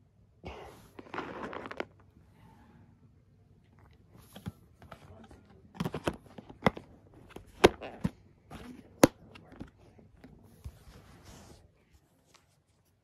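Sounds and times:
soft rustling: 9.4s - 13.0s.

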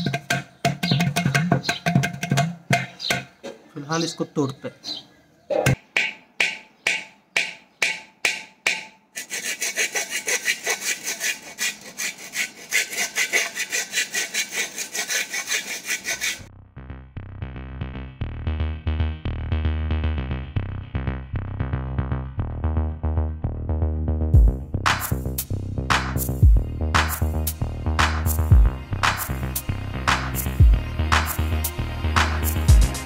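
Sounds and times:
music with thumping beat: 0.0s - 3.3s, 24.4s - 29.4s, 30.1s - 31.6s, 32.2s - 33.0s
saw rasping on clay pot: 6.0s - 16.5s.

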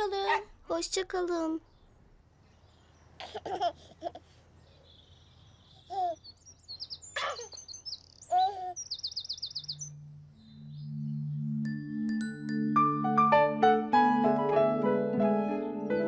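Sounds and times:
baby giggling and cooing: 3.2s - 4.4s, 5.9s - 6.2s, 8.3s - 8.8s
birdsong chirps and trill: 4.4s - 13.1s
soft low music tones: 9.8s - 16.0s.

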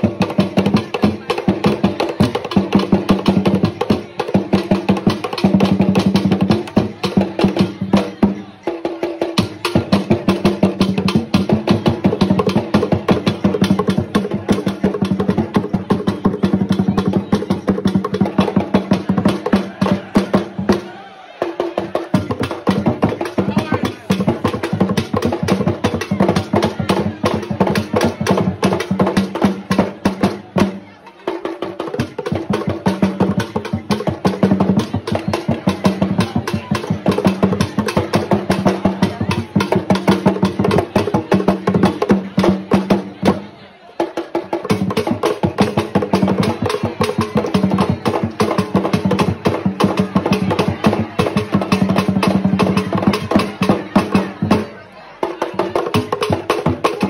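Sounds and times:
drum ensemble playing fast rhythm: 0.0s - 57.0s.

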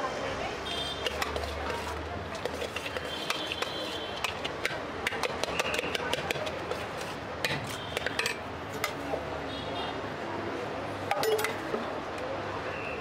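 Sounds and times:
clicks and clinks on steel bowl: 11.1s - 11.6s.

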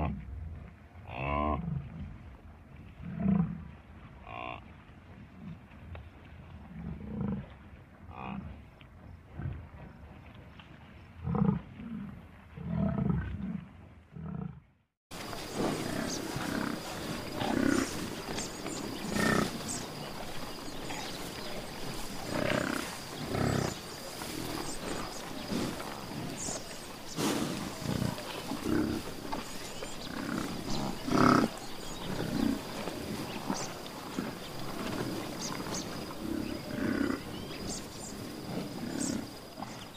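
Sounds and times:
buffalo grunting: 3.0s - 4.6s, 11.2s - 39.9s.

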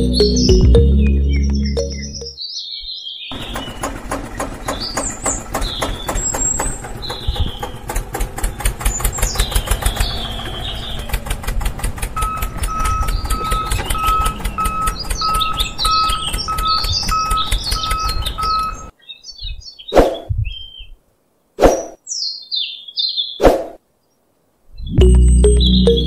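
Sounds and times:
birds chirping: 0.0s - 11.6s, 12.2s - 26.0s
tractor engine running: 3.3s - 18.9s
short beeps: 12.2s - 17.4s.

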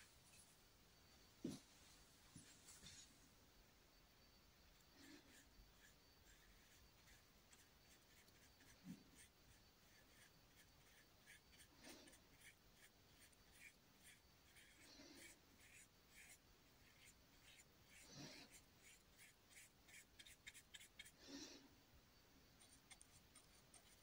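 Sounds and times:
paintbrush strokes on canvas: 5.0s - 21.4s.

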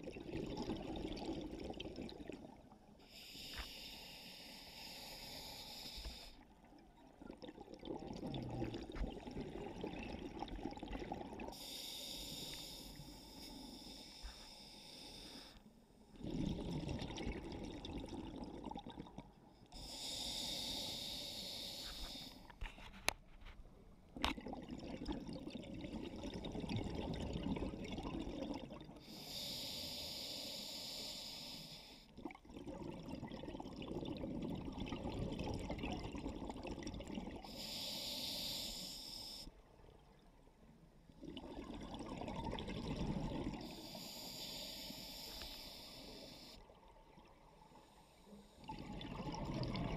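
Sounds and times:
exhaled air bubbling: 0.0s - 3.5s, 4.8s - 14.4s, 16.1s - 20.8s, 24.0s - 29.5s, 32.0s - 37.8s, 39.5s - 47.8s, 48.6s - 49.9s
regulator inhale hiss: 3.0s - 6.4s, 11.5s - 15.7s, 19.8s - 22.6s, 29.0s - 32.1s, 37.4s - 39.6s, 43.6s - 46.6s.

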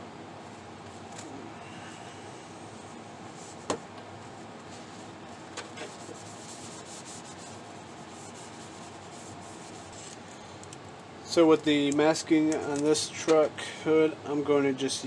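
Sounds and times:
hands rubbing plastic: 4.3s - 10.8s.

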